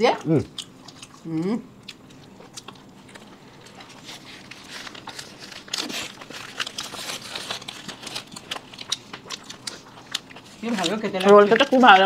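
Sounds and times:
crunching and chewing: 0:00.1 - 0:12.0
paper wrapper crinkling: 0:03.7 - 0:12.0.

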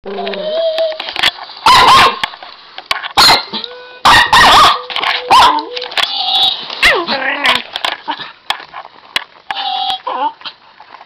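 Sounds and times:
young dog barking: 0:01.7 - 0:02.2, 0:03.2 - 0:05.6.

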